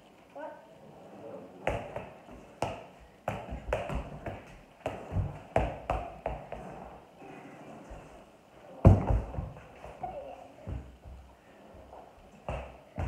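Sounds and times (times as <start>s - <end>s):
ball tapping off feet: 1.7s - 6.7s, 8.8s - 13.0s.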